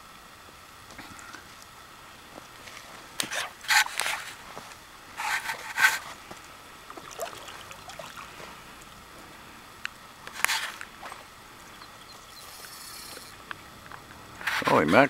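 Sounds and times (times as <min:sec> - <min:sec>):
fish splashing at water surface: 0:06.8 - 0:09.0.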